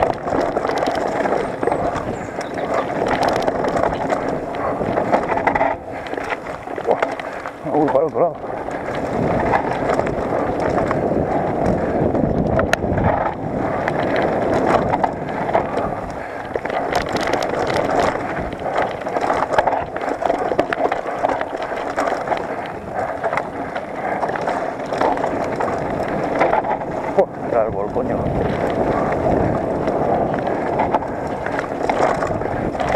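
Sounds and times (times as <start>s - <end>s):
bike rattling over bumps: 0.0s - 32.9s
bike tyres crunching on dirt: 0.0s - 32.9s.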